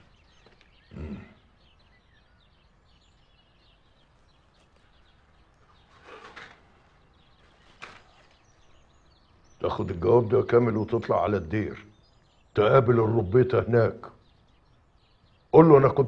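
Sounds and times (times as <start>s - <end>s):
birds chirping faintly: 0.0s - 16.0s.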